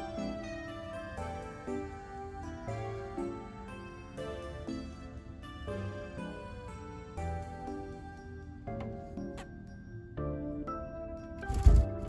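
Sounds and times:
gentle background music: 0.0s - 12.0s.

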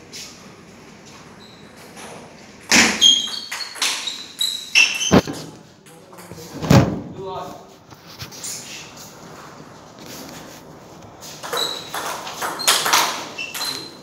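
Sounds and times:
table tennis ball hits: 2.7s - 4.1s, 11.4s - 13.9s
loud thud: 6.6s - 7.1s.

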